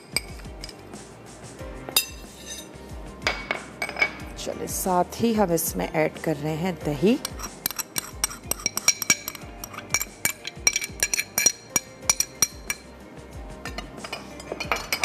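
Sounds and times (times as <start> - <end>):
spoon clinking against bowl: 0.0 - 0.8, 7.2 - 12.9, 13.6 - 15.0.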